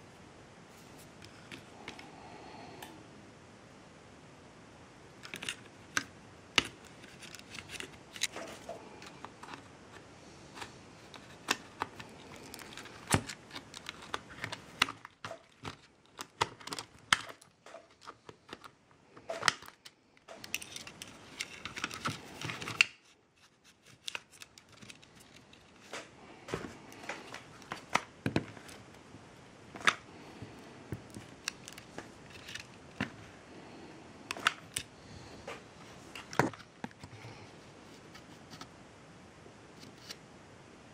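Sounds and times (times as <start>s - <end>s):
scraping and tearing: 6.7s - 18.7s.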